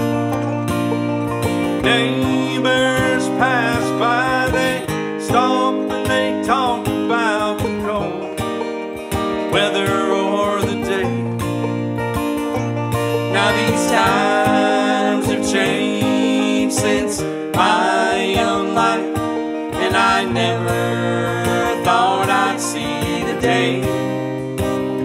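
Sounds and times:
acoustic guitar: 0:00.0 - 0:25.0
banjo: 0:00.0 - 0:25.0
man singing: 0:01.8 - 0:08.4, 0:09.4 - 0:11.3, 0:13.3 - 0:24.1.

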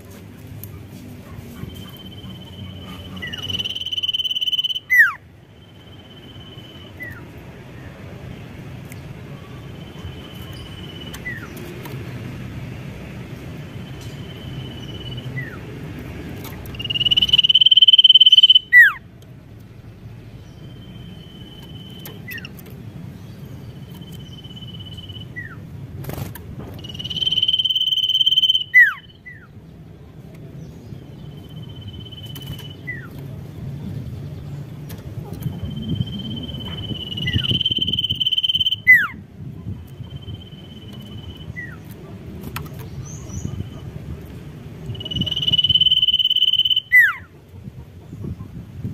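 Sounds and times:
songbird whistling: 0:01.6 - 0:07.2, 0:16.6 - 0:19.0, 0:23.9 - 0:25.6, 0:26.8 - 0:29.5, 0:31.4 - 0:33.1, 0:35.6 - 0:39.2, 0:44.9 - 0:47.3.

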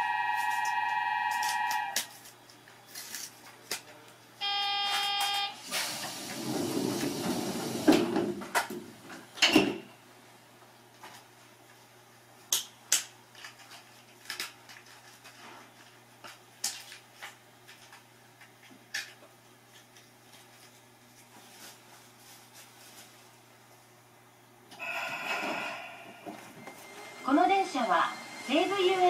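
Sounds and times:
train horn tone: 0:00.0 - 0:02.0
train hissing: 0:05.6 - 0:08.0, 0:24.8 - 0:29.0.

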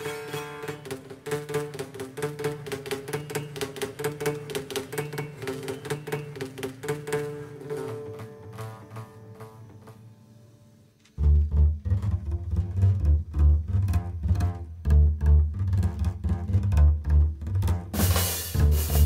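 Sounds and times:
drums and cymbals: 0:00.0 - 0:10.0, 0:17.8 - 0:19.0
plucked double bass: 0:00.0 - 0:10.0, 0:11.2 - 0:19.0.

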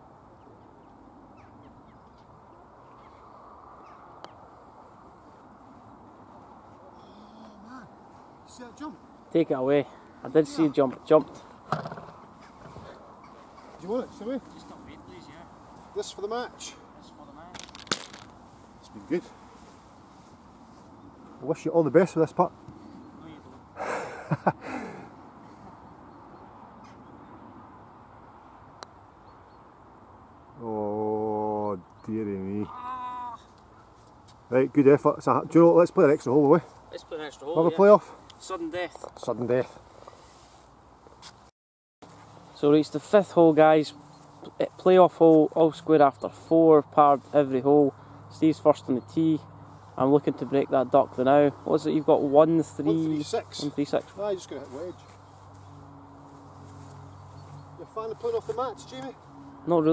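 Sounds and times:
outdoor background noise: 0:00.0 - 0:59.9
faint bird calls: 0:00.3 - 0:05.9, 0:06.7 - 0:08.9, 0:11.4 - 0:15.3, 0:22.6 - 0:27.5, 0:30.6 - 0:34.2
putter striking golf ball: 0:11.7 - 0:12.2, 0:17.5 - 0:18.3.

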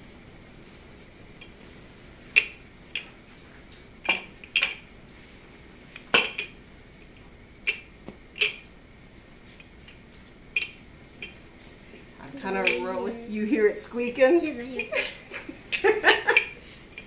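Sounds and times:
dough squeaking and popping: 0:06.1 - 0:08.8.

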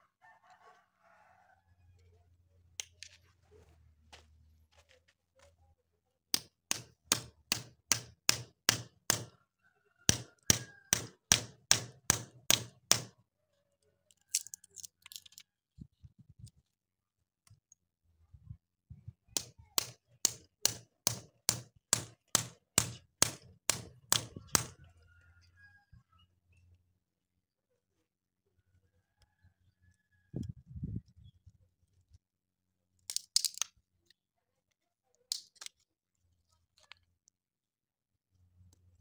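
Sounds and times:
hatchet hammering metal blade: 0:06.4 - 0:09.3, 0:10.1 - 0:13.1, 0:19.4 - 0:24.7.

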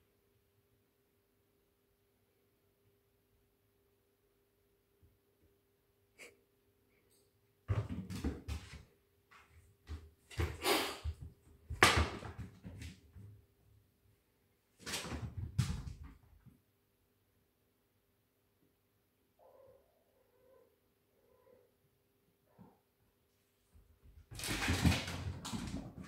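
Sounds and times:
cats scuffling on hard floor: 0:07.7 - 0:13.4, 0:14.8 - 0:16.5, 0:23.7 - 0:26.0.

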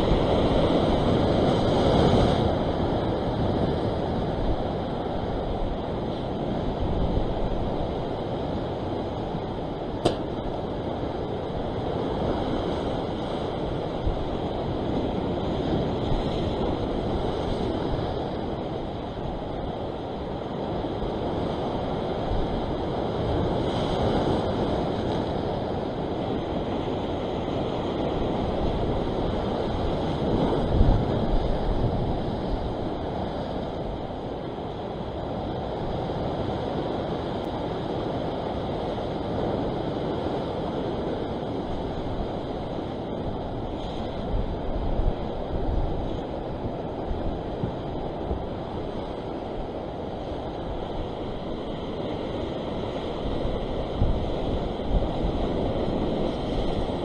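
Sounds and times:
surf washing against rocks: 0:00.0 - 0:57.0
wind buffeting microphone: 0:00.0 - 0:57.0.

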